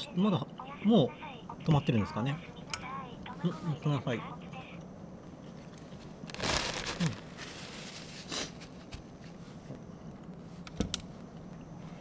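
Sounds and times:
plastic bag and paper rustling: 0:06.2 - 0:08.9.

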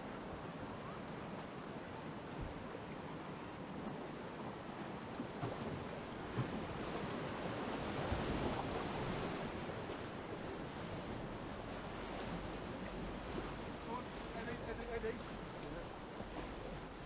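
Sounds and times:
rushing whitewater: 0:00.0 - 0:17.0.

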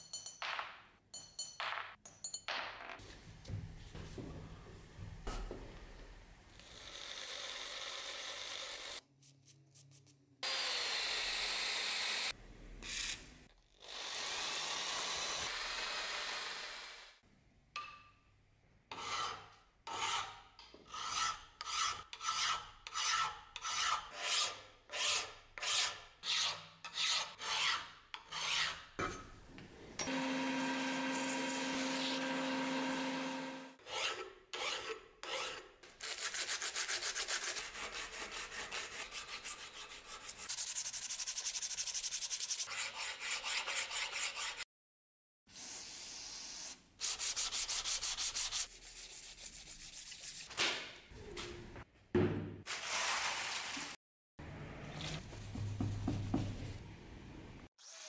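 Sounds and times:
file rasping on steel: 0:18.9 - 0:28.9, 0:33.8 - 0:44.7
sandpaper rubbing on metal: 0:36.0 - 0:44.6, 0:45.5 - 0:50.5.

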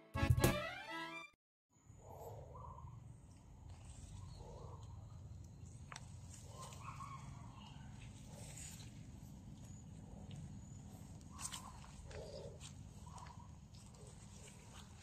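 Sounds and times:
rustling through weeds and grass: 0:05.6 - 0:10.0, 0:10.9 - 0:15.0.

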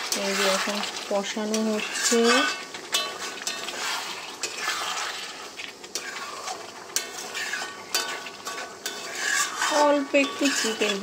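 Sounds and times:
food sizzling: 0:00.0 - 0:11.0
metal spatula scraping pan: 0:00.0 - 0:11.0.

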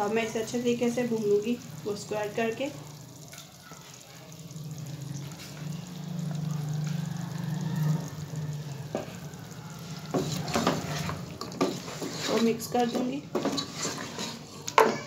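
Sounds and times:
meat sizzling in hot oil: 0:00.0 - 0:15.0.

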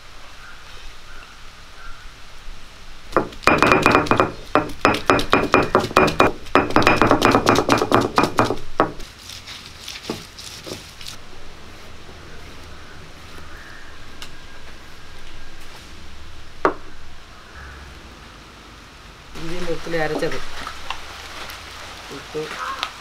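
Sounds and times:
stone roller knocking on stone slab: 0:03.1 - 0:09.0.

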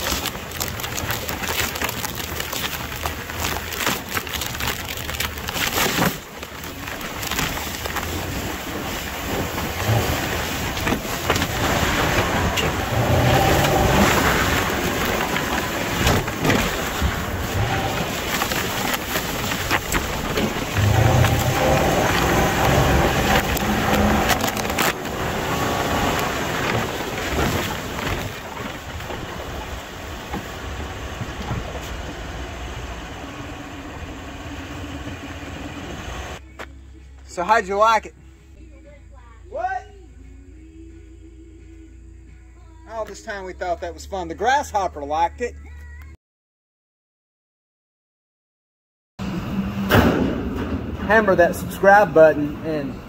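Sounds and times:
weeds rushing and crackling: 0:00.0 - 0:33.0
truck engine driving: 0:00.0 - 0:39.3, 0:49.2 - 0:53.0.

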